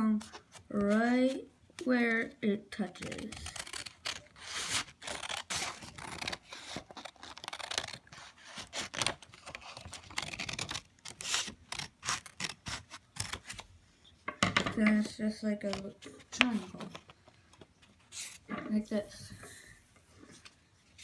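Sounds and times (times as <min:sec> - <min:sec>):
scissors cutting paper: 0:02.8 - 0:13.6.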